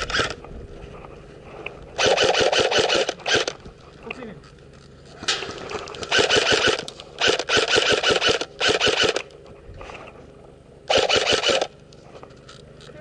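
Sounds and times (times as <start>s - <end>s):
mechanism whine: 0.0s - 13.0s
airsoft rifle firing bursts: 2.0s - 3.6s, 6.0s - 9.3s, 10.9s - 11.8s.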